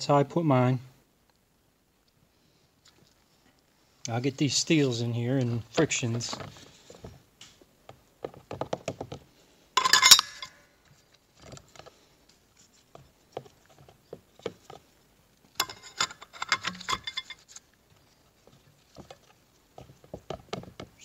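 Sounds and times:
metal clutch plates clinking: 9.8 - 10.6.

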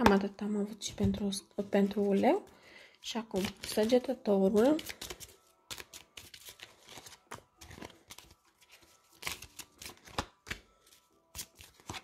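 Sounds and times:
cards being shuffled: 3.4 - 12.0.

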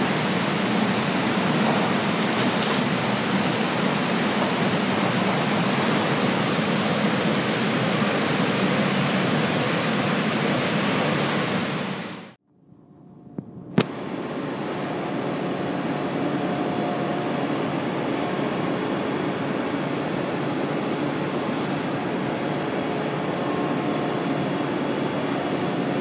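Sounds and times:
conveyor rushing with coal: 0.0 - 12.4.

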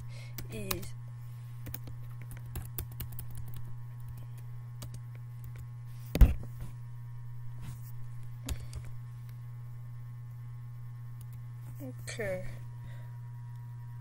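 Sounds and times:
steady low hum: 0.0 - 14.0
keyboard typing: 1.6 - 5.6.

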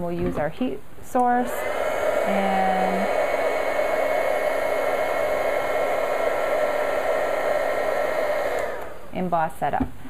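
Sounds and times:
heat gun whirring: 1.3 - 9.3.

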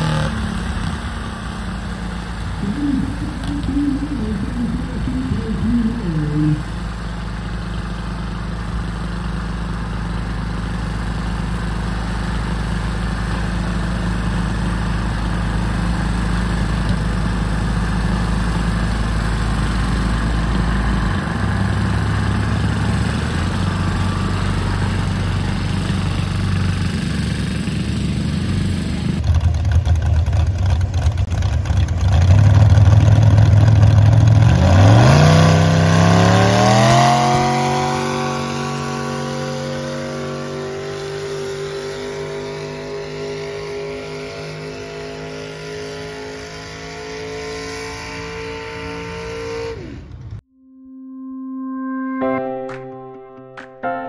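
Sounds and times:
tractor engine idling: 0.0 - 34.6
tractor engine revving: 0.0 - 50.4.

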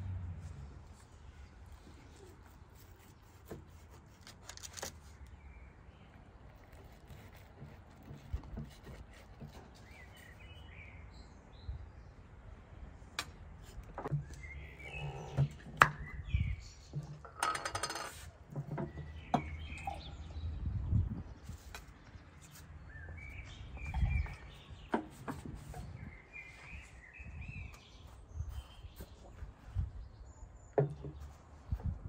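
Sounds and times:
birds chirping: 8.0 - 12.3, 13.6 - 17.8, 18.5 - 31.9.

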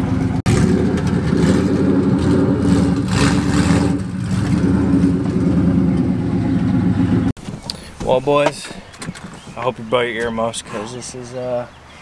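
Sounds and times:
loud car engine idling: 0.0 - 7.3.

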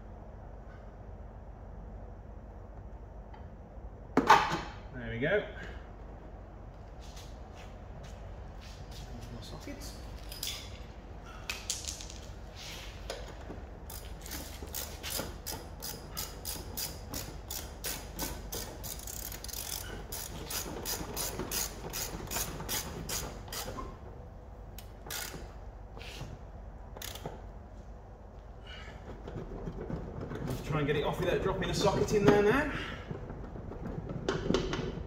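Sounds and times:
hand ratchet clicking: 13.9 - 23.8, 24.8 - 25.5, 27.0 - 27.3.

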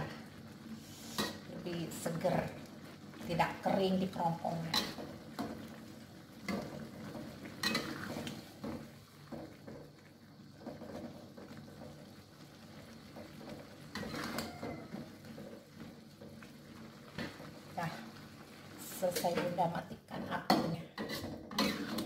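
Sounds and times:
metal spatula scraping a wok: 0.8 - 1.5, 4.6 - 5.1, 7.6 - 8.8, 13.9 - 15.5, 20.9 - 22.0.

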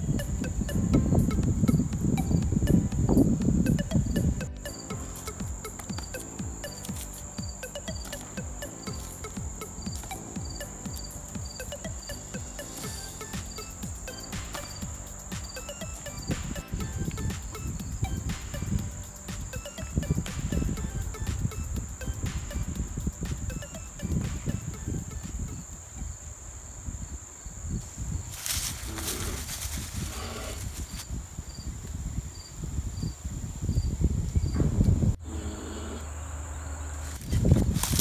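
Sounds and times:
faint repeating chirp: 0.0 - 25.7
insects buzzing: 0.0 - 38.0
rustling: 28.3 - 31.1.

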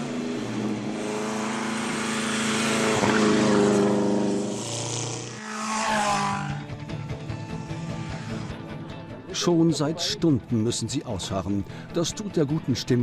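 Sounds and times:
racing car engine at high revs: 0.0 - 8.7.

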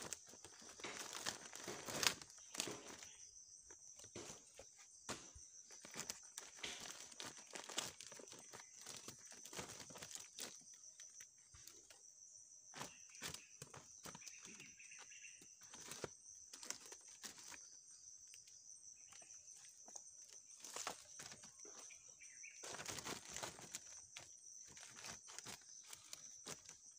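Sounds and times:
firewood pieces knocking together: 0.0 - 3.1, 4.0 - 10.6
plastic sack crinkling: 0.0 - 3.2, 4.0 - 11.8, 22.6 - 26.8.

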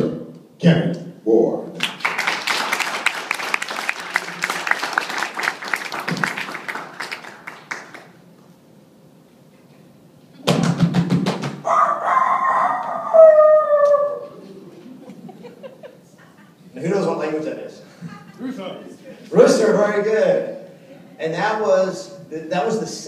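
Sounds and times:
audience applause: 1.8 - 8.2
man imitating rooster crowing: 11.7 - 14.7.

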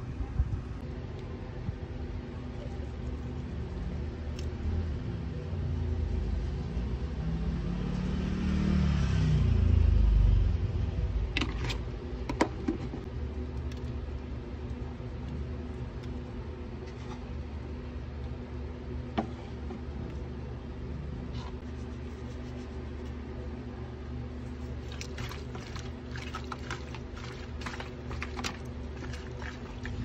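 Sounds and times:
vehicle engine passing by: 5.9 - 11.1.

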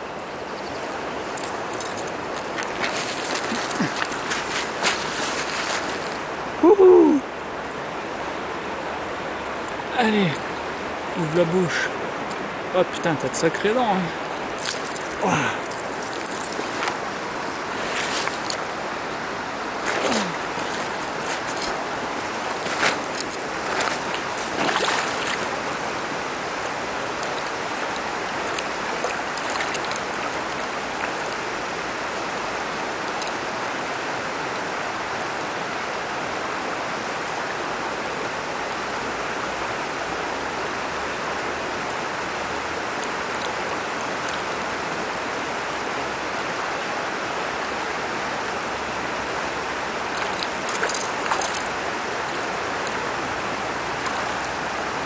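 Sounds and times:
river rushing over stones: 0.0 - 55.0
person wading into water: 1.4 - 6.2, 19.8 - 25.8.

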